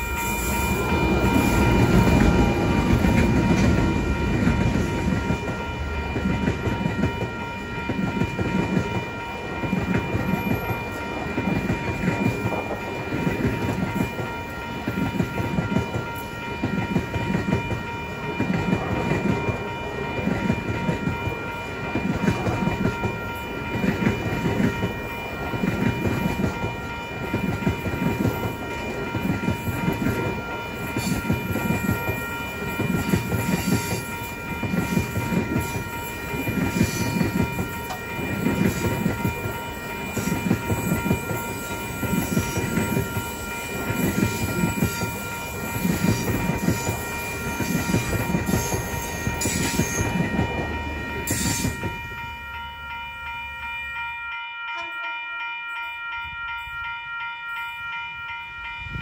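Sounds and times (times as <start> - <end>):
steady high whine: 0.0 - 8.4.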